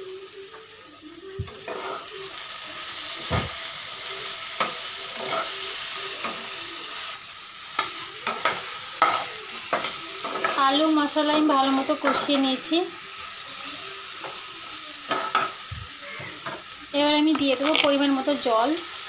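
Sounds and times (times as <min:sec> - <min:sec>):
potatoes sizzling in a pan: 0:00.0 - 0:19.0
spatula scraping a pan: 0:01.6 - 0:02.1, 0:04.6 - 0:06.5.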